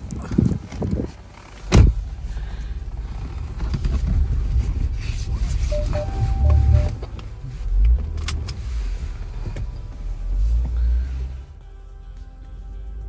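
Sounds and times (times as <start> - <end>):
car engine running: 1.1 - 11.5
car door thudding shut: 1.7 - 2.1
held electronic tone: 5.7 - 7.0
short electronic beeps: 5.7 - 7.0.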